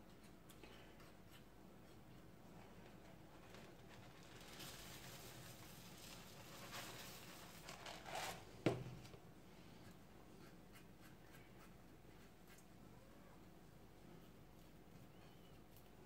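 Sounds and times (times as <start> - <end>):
oat flakes pouring rustling: 3.6 - 8.5.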